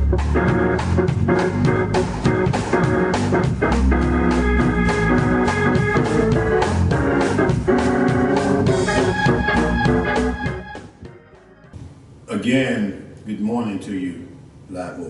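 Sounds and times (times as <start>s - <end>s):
organ music with steady beat: 0.0s - 11.8s.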